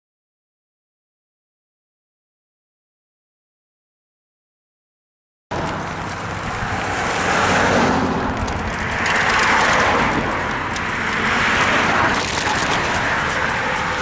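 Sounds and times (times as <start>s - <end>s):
cars passing: 5.5s - 14.0s
low vehicle rumble: 5.5s - 14.0s.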